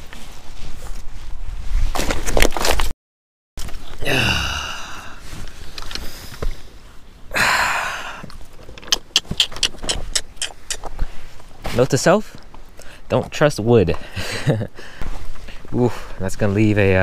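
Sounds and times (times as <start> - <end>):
clothing rustling against camera: 0.0 - 2.9
clicks and knocks of rocks: 1.9 - 2.9.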